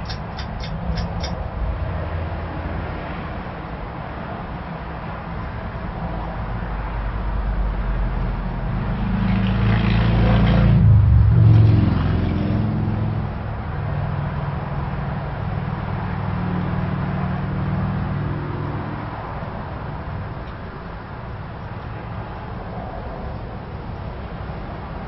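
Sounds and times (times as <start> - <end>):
ceiling fan running: 0.0 - 2.5
loud rushing sound: 10.6 - 13.3.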